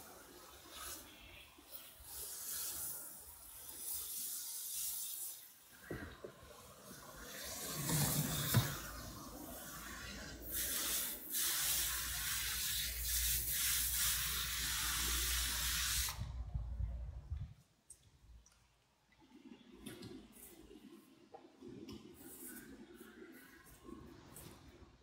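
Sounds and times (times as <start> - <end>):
hose nozzle spraying water: 9.6 - 16.4.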